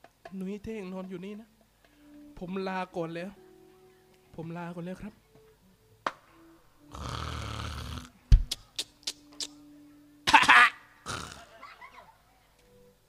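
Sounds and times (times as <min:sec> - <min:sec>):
person snoring and snorting: 0:06.9 - 0:08.2, 0:11.0 - 0:11.6.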